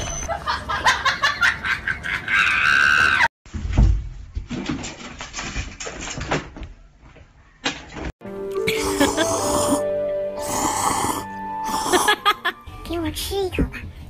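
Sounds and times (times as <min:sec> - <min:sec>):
person shrieking and laughing: 0:02.0 - 0:03.3, 0:08.6 - 0:09.8.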